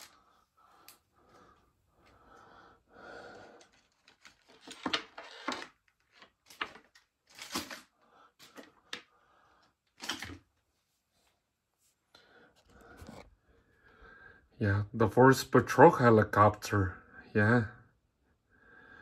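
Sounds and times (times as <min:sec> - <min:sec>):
plastic packaging rustling and clicking: 0:03.3 - 0:09.1, 0:09.8 - 0:10.6.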